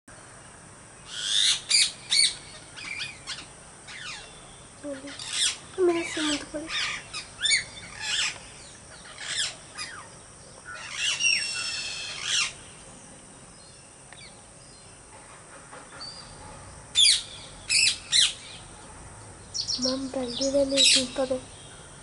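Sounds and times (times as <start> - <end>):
parakeets screeching: 1.1 - 4.3, 4.9 - 10.1, 10.7 - 12.6, 19.8 - 21.4.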